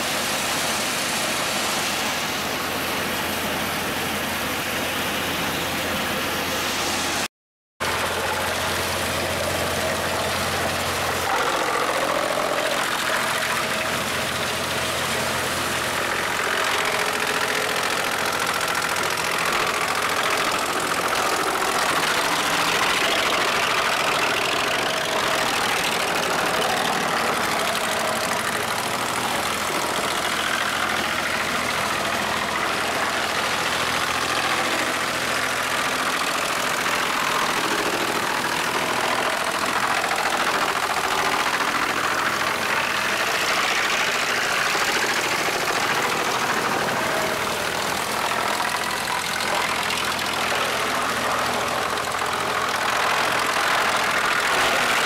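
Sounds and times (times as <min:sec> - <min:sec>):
wood chipper chipping boards: 0:00.0 - 0:55.0.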